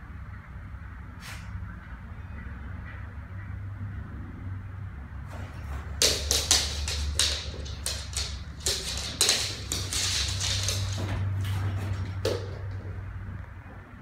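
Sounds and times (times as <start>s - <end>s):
dog claws tapping on floor: 5.3s - 13.0s.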